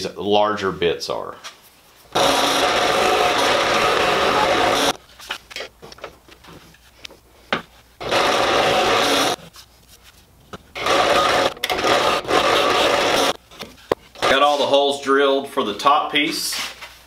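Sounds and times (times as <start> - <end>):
drill press boring wood: 2.2 - 5.0, 8.0 - 9.4, 10.8 - 13.4, 14.2 - 14.6.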